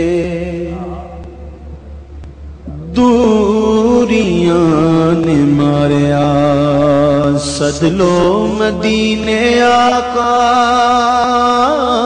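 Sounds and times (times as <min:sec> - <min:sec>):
man singing a held note: 0:00.0 - 0:01.8
low steady hum: 0:00.0 - 0:12.0.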